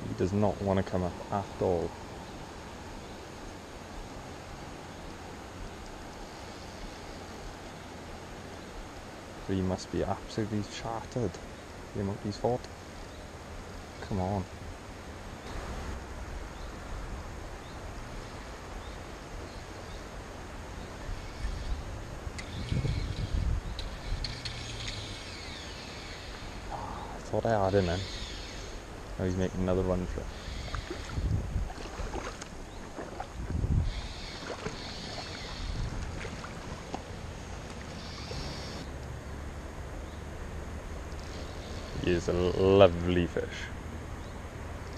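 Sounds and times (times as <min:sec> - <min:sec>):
steady outdoor hiss: 0:00.0 - 0:44.9
wind rumbling on microphone: 0:13.6 - 0:42.6
faint bird chirps: 0:20.7 - 0:31.3, 0:33.8 - 0:35.9, 0:37.9 - 0:38.9, 0:41.2 - 0:42.6
wind buffeting microphone: 0:21.0 - 0:25.0, 0:29.9 - 0:37.3
water splashing and sloshing: 0:30.6 - 0:38.7.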